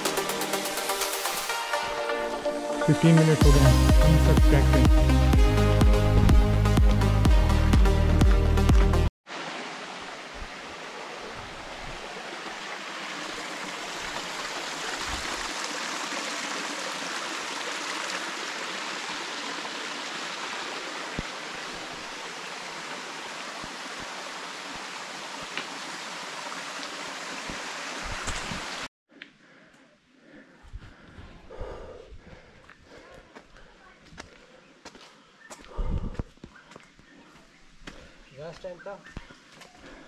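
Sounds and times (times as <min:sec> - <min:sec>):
stream flowing over rocks: 0:09.3 - 0:28.9.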